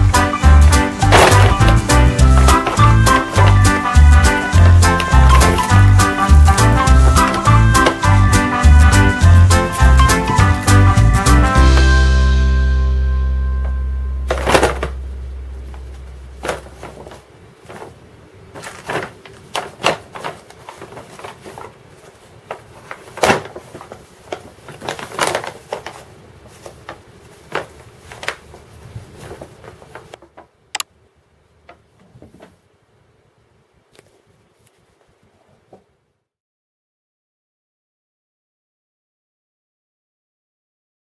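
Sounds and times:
paper bag crinkling: 0.3 - 12.2, 14.2 - 30.5.

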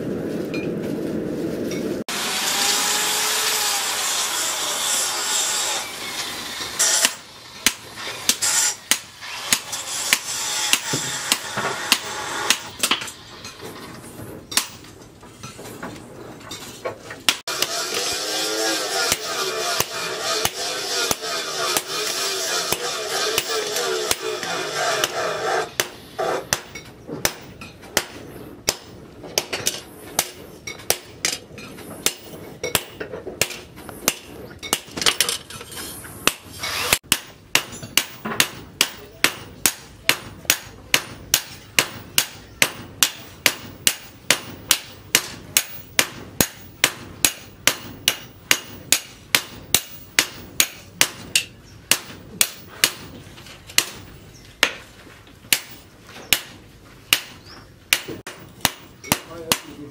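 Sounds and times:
hammer striking metal: 6.8 - 13.6, 17.3 - 31.4, 36.2 - 53.2, 55.5 - 59.8.

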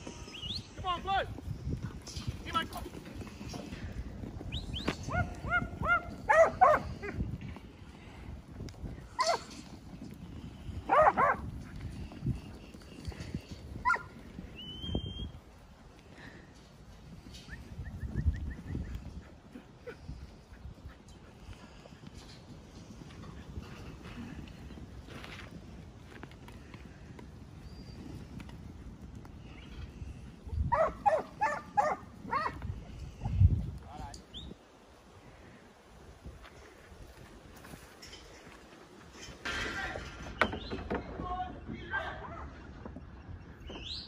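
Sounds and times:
low rumble of moving sheep: 0.0 - 39.3
dog barking: 5.1 - 6.9, 10.9 - 11.4, 30.7 - 32.6.

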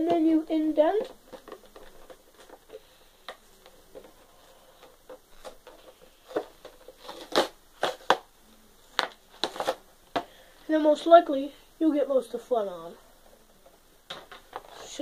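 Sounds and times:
plastic and cardboard packaging tearing: 4.8 - 8.3, 9.3 - 9.8.

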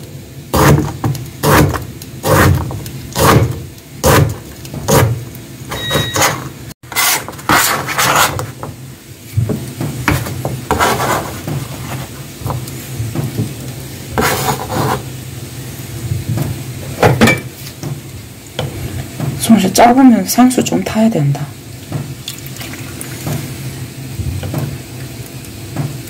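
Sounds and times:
knife slicing radish: 0.6 - 5.2, 6.2 - 8.6, 14.2 - 15.0
scraping of slices: 5.9 - 8.7, 10.1 - 12.3, 14.2 - 15.1.

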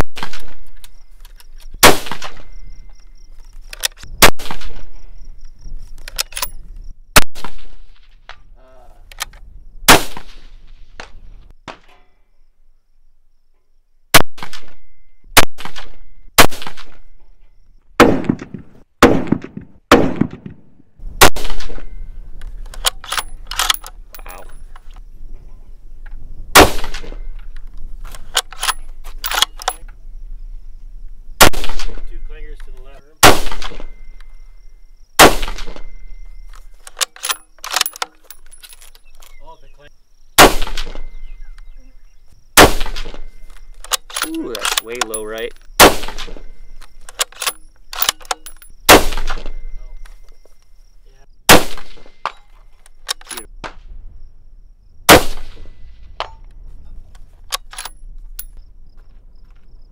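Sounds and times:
loud rifle shots: 0.1 - 0.8, 1.8 - 2.7, 4.2 - 5.1, 7.2 - 8.2, 9.9 - 10.7, 14.1 - 17.2, 18.0 - 22.0, 26.5 - 27.3, 31.4 - 32.1, 33.2 - 34.0, 35.2 - 36.1, 40.4 - 41.2, 42.6 - 45.2, 45.8 - 46.7, 48.8 - 49.8, 51.5 - 52.3, 55.1 - 56.2
faint cracks and clicks: 0.3 - 2.4.

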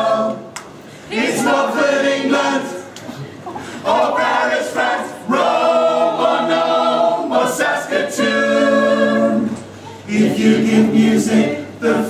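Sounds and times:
mixed choir singing in harmony: 0.0 - 3.0, 3.6 - 12.0.

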